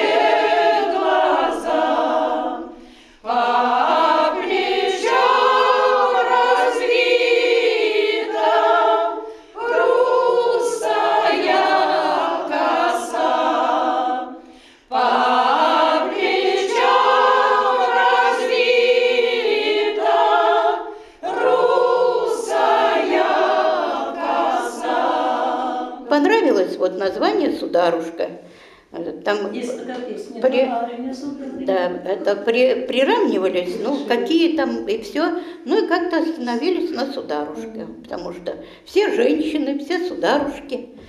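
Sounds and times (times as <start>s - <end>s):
women singing unaccompanied: 0.0s - 27.4s.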